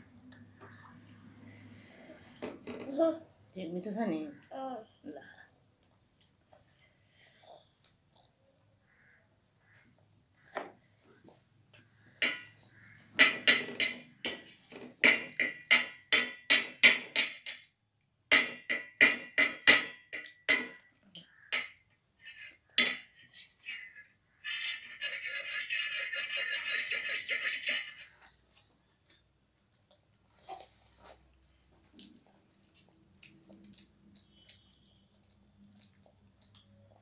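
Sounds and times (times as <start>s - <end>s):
wet eating clicks: 31.9s - 37.0s.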